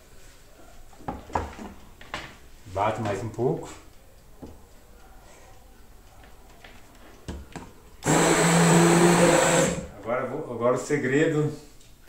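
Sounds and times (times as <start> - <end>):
immersion blender running: 8.0 - 9.9.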